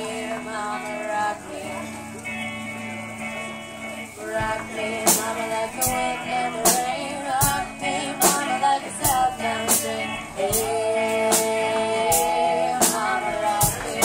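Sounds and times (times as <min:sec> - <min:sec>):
woman singing lead vocal: 0:00.0 - 0:02.1, 0:04.2 - 0:14.0
live rock band playing: 0:00.0 - 0:14.0.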